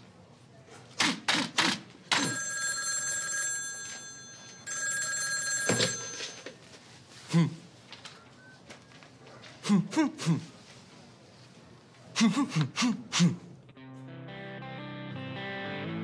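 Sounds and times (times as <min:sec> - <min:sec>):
telephone bell ringing: 0:02.1 - 0:06.7
short vocal sound: 0:07.2 - 0:07.7, 0:12.2 - 0:13.6.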